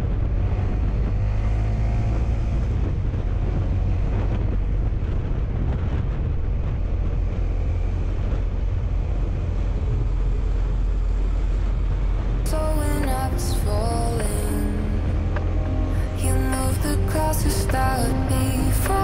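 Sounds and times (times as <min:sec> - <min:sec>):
motorcycle engine cruising: 0:00.0 - 0:13.0
wind on microphone: 0:00.0 - 0:19.0.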